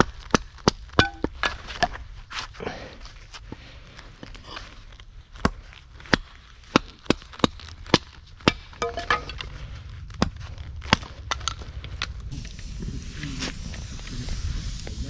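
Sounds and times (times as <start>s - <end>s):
wood splitting crackle: 4.8s - 12.7s.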